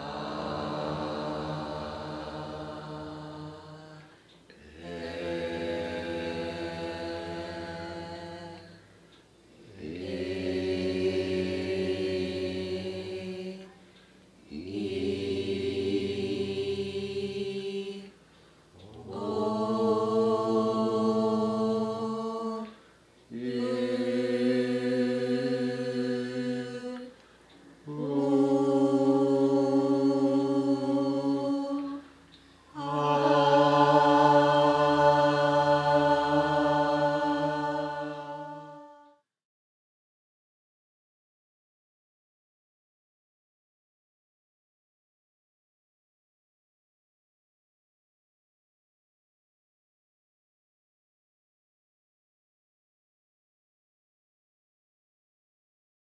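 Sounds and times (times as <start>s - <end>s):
deep vocal chanting: 0.0s - 27.2s, 27.8s - 39.3s.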